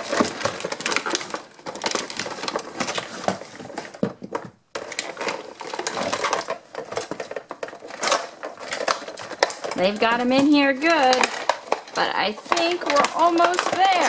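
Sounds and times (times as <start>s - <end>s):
toy packaging rustling and clicking: 0.0s - 14.0s.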